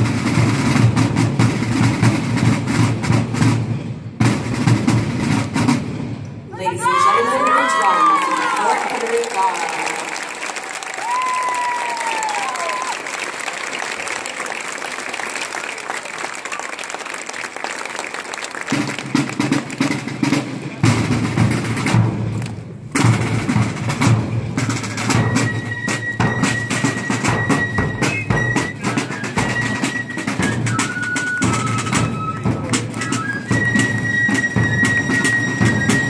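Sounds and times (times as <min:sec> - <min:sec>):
snare and bass drums march: 0:00.0 - 0:06.4, 0:18.7 - 0:36.0.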